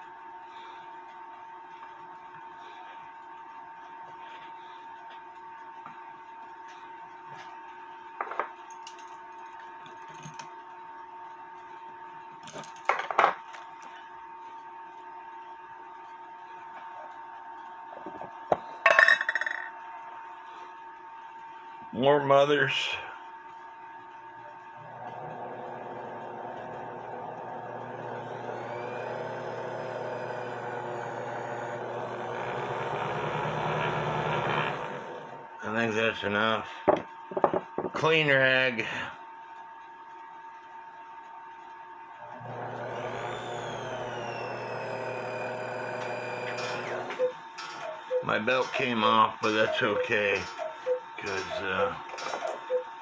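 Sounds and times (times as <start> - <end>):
lathe whirring: 24.5 - 35.6, 42.1 - 53.0.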